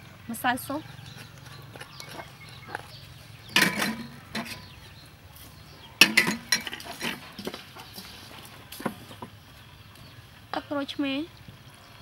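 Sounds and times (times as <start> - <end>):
wooden spoon scraping steel bowl: 1.0 - 4.9, 6.0 - 9.3.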